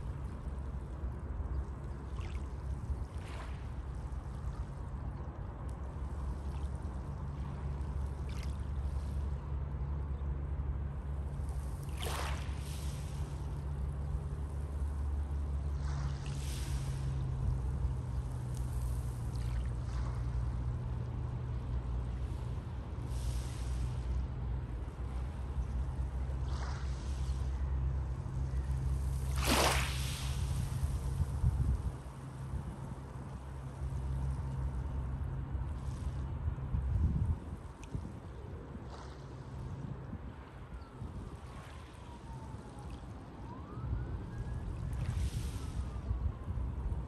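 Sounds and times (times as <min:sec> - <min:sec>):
steady low rumble: 0:00.0 - 0:47.0
waves washing onto pebbles: 0:11.7 - 0:13.4, 0:28.7 - 0:33.2.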